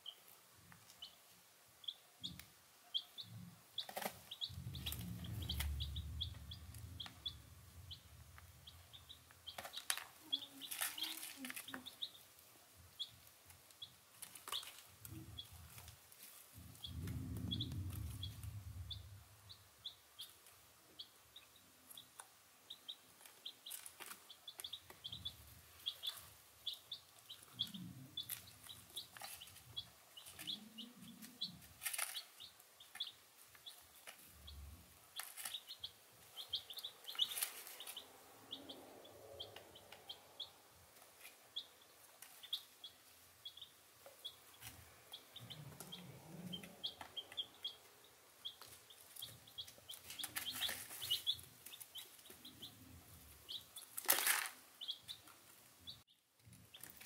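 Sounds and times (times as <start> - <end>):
baby chicks peeping: 0.0 - 57.0
low rumble: 4.4 - 9.1, 16.6 - 19.6.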